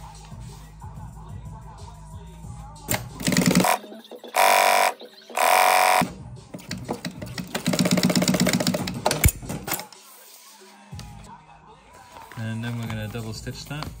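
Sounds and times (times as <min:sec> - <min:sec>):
sewing machine stitching: 0:03.2 - 0:03.8, 0:04.4 - 0:06.0, 0:07.5 - 0:08.9.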